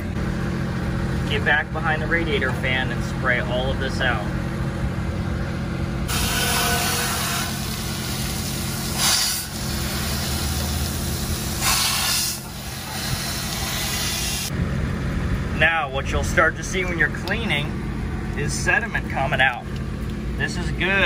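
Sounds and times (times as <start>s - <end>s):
steady low hum: 0.0s - 21.0s
hose spray hissing and splashing: 6.1s - 14.5s.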